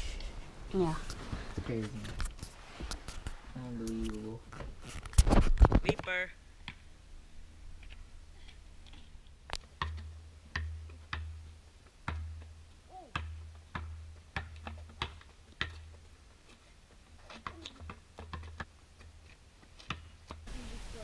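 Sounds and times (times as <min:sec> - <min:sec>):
basketball bouncing on concrete: 0:09.6 - 0:16.1, 0:17.2 - 0:20.4.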